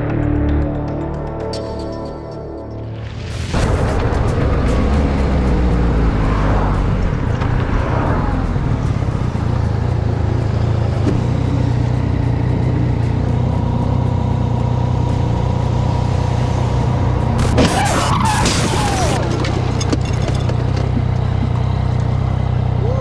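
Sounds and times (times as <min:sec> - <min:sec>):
motorcycle engine idling: 0:08.4 - 0:17.4, 0:20.4 - 0:23.0.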